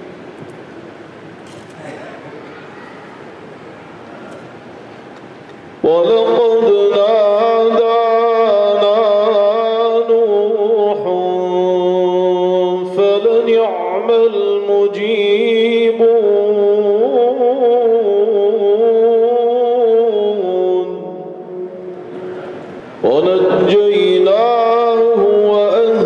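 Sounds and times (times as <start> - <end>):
man chanting: 5.8 - 22.0, 23.0 - 26.0.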